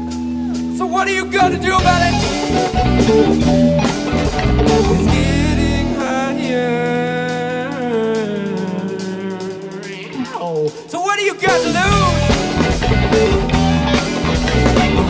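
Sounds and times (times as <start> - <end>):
bass guitar: 0.0 - 10.8, 11.4 - 15.0
drum kit: 0.0 - 15.0
electric guitars: 0.0 - 15.0.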